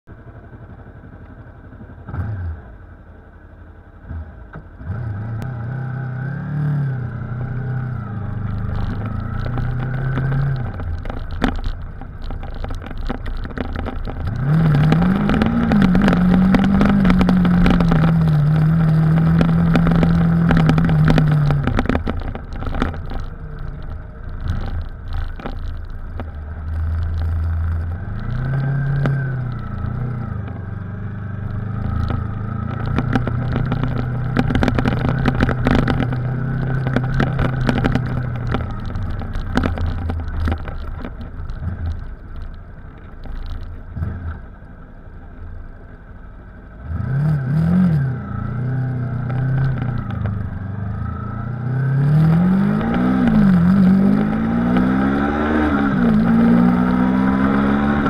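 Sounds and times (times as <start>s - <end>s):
motorcycle engine riding: 0.1s - 58.0s
knocks and rattles: 8.3s - 44.0s.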